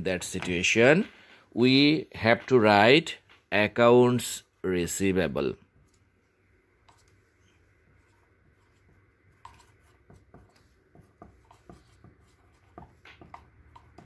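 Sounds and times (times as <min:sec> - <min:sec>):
marker squeaking on whiteboard: 0:09.5 - 0:14.0.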